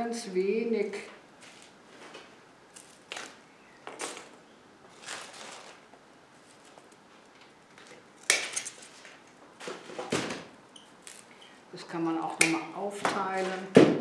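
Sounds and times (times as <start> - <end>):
dry plant material rustling: 1.4 - 10.0.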